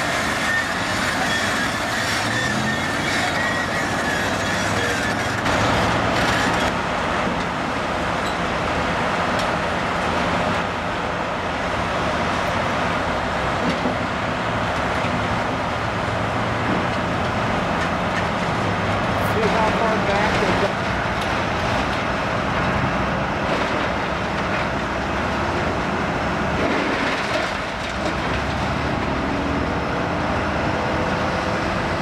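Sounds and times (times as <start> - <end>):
excavator diesel engine running: 0.0 - 32.0.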